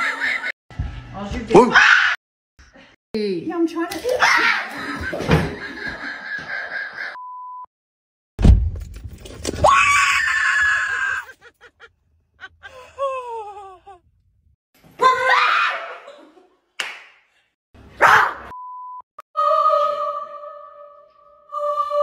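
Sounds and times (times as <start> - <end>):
women screaming: 4.1 - 4.8, 9.6 - 11.4, 15.0 - 16.1
loud thump: 8.4 - 9.2.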